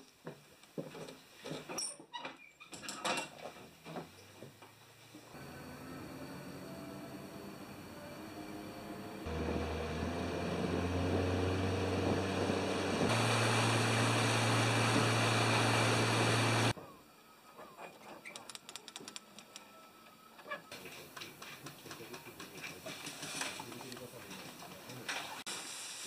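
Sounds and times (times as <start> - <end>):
outboard motor running: 5.4 - 16.7.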